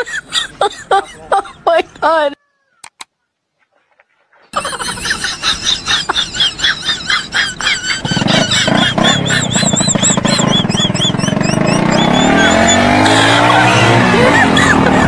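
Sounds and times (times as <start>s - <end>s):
engine hum: 4.6s - 15.0s
engine cranking squeal: 6.4s - 15.0s.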